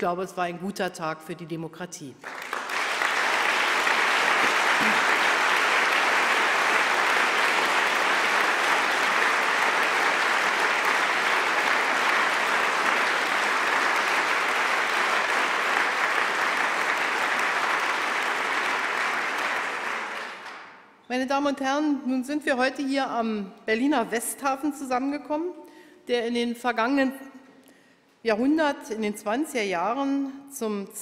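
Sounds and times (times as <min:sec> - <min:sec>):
audience applauding: 0:02.2 - 0:20.9.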